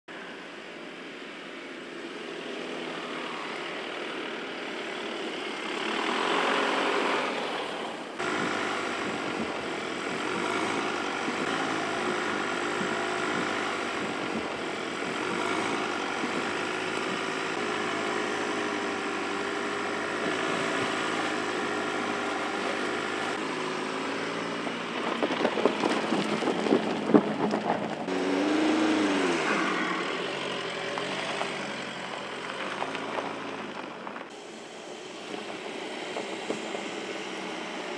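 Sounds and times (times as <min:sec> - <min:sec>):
car engine running at low speed: 0:00.1 - 0:37.9
tyres crackling over dirt: 0:08.2 - 0:37.9.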